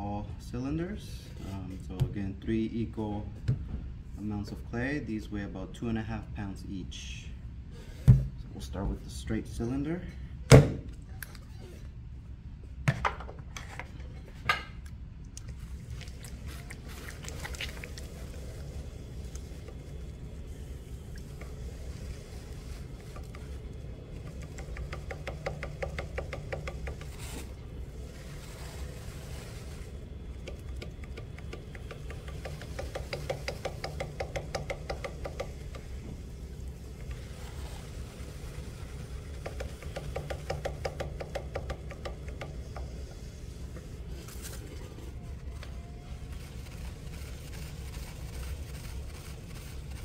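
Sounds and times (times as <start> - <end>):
wet hands rubbing clay: 15.5 - 35.4
potter's wheel humming: 15.5 - 50.0.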